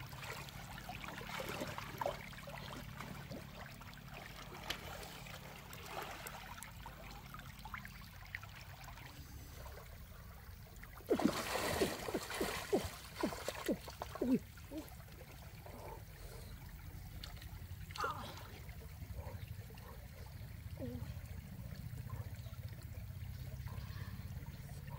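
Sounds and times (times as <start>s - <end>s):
stream trickling: 0.0s - 24.9s
hands splashing in water: 11.1s - 14.4s.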